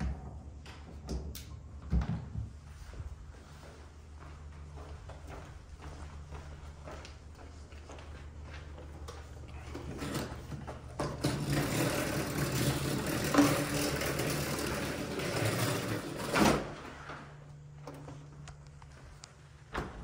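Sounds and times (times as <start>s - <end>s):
vacuum cleaner rolling on rubber floor: 7.6s - 20.0s.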